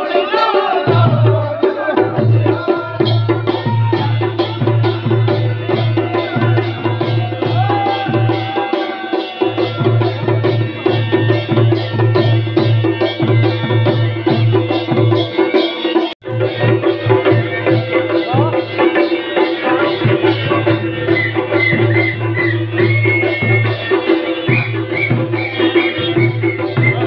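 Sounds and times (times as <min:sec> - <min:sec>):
man singing into a microphone: 0:00.0 - 0:05.0
drums beaten in fast rhythm: 0:00.0 - 0:27.0.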